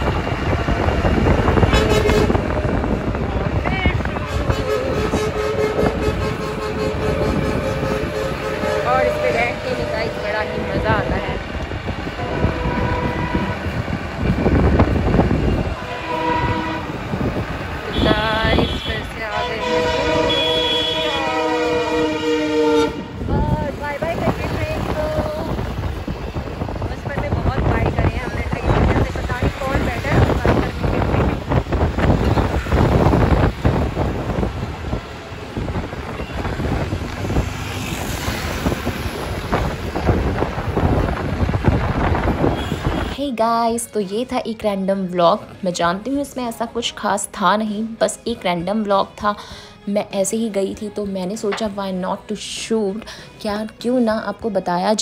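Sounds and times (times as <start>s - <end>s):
road and wind rumble: 0.0s - 55.0s
vehicle noise: 0.0s - 55.0s
vehicle horn: 1.6s - 2.6s, 4.2s - 11.3s, 12.2s - 13.8s, 15.5s - 17.1s, 17.9s - 23.2s, 42.4s - 43.2s.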